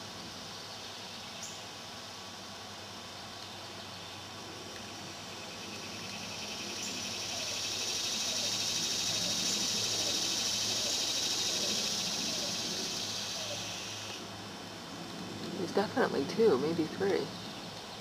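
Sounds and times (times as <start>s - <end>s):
insect buzzing trill: 5.5s - 14.2s.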